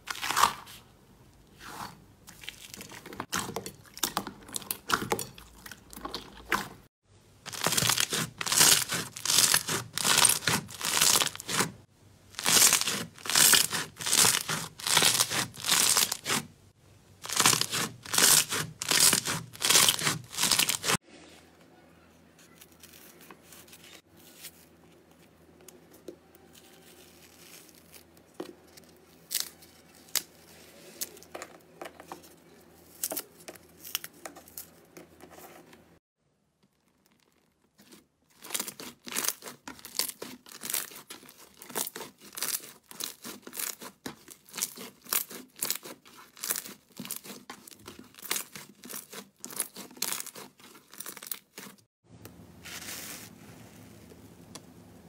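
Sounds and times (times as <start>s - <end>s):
slime tearing with soft crackles: 7.5s - 11.8s, 36.5s - 51.9s.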